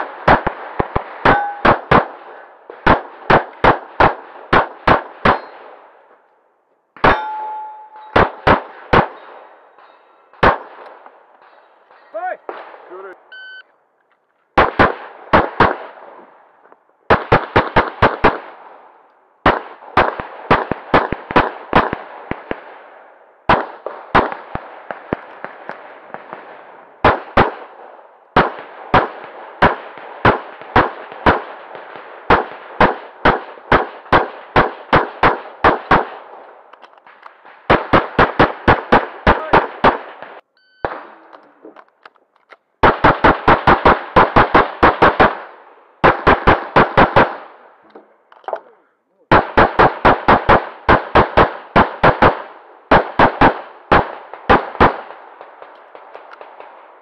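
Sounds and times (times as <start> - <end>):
rapid pistol fire: 0.0 - 5.7, 8.2 - 9.3, 10.4 - 11.0, 14.6 - 16.0, 17.1 - 18.7, 19.4 - 22.9, 23.5 - 36.3, 37.0 - 41.2, 42.8 - 47.6, 49.3 - 56.8.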